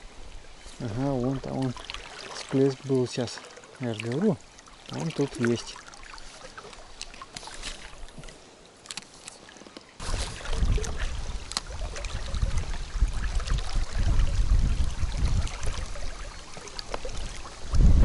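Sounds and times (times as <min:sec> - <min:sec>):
river water rushing: 0:00.0 - 0:17.8
wind rumble on microphone: 0:10.0 - 0:18.0.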